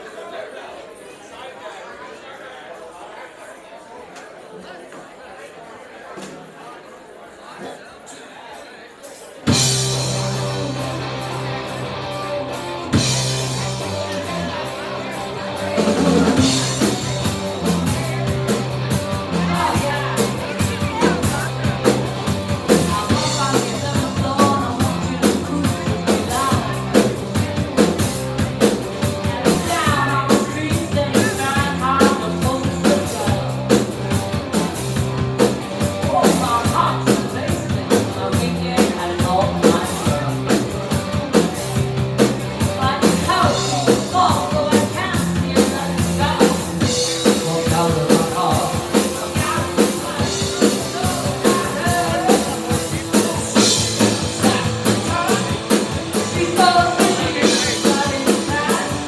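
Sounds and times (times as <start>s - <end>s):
bass guitar: 9.5s - 59.0s
drum kit beat: 9.5s - 59.0s
electric guitar: 9.5s - 59.0s
woman singing: 22.8s - 26.8s, 29.4s - 33.5s, 56.2s - 59.0s.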